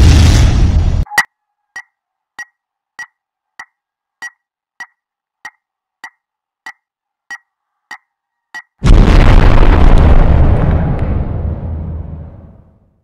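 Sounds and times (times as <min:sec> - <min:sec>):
sharp ticks: 0:01.1 - 0:08.8.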